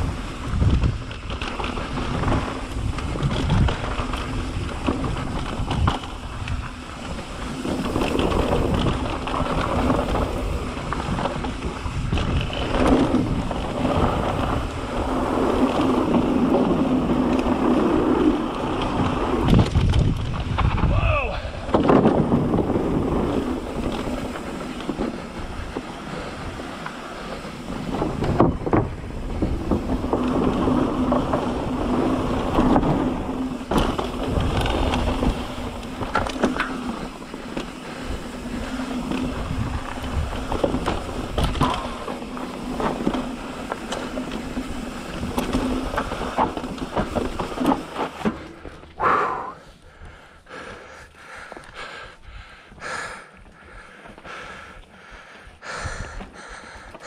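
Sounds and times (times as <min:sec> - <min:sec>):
wind on microphone: 0:00.0 - 0:37.1, 0:37.8 - 0:47.7
bike rattling over bumps: 0:00.0 - 0:57.0
tyres crunching over dirt and rocks: 0:21.6 - 0:49.0.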